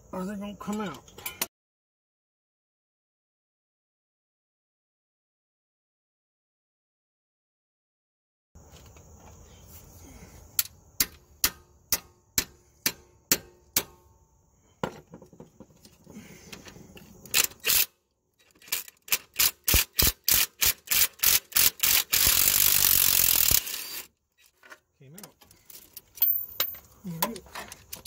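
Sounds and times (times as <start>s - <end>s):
metallic ratchet clicks: 17.3s - 24.1s.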